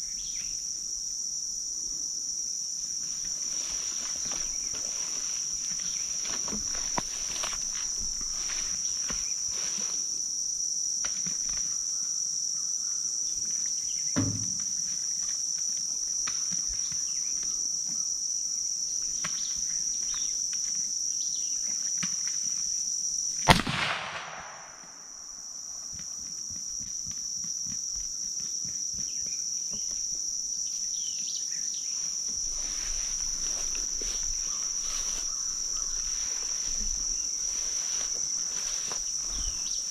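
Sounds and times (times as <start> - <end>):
high-pitched insect chorus: 0.0 - 39.9
faint thump: 14.2 - 14.7
rifle shot: 23.5 - 25.1.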